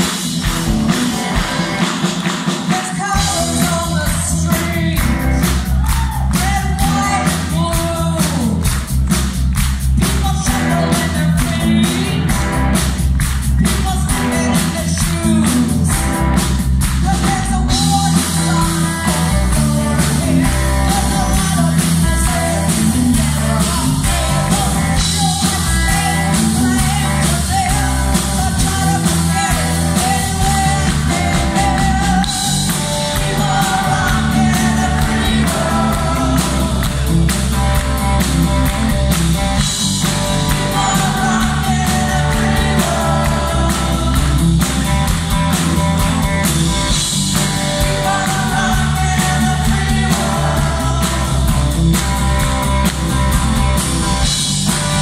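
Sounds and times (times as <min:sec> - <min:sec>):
live rock band: 0:00.0 - 0:55.0
woman singing lead: 0:10.0 - 0:12.6, 0:17.0 - 0:37.1, 0:40.4 - 0:44.7, 0:47.7 - 0:51.8.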